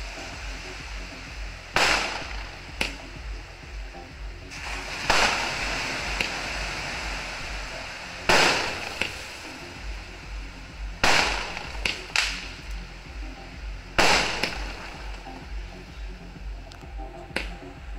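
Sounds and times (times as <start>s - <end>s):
small firework pops: 11.0s - 12.5s.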